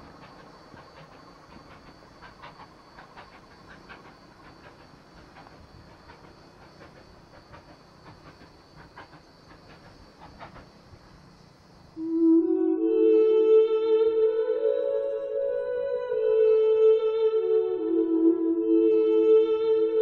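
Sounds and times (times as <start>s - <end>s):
steam locomotive exhaust beats: 0.0s - 12.5s.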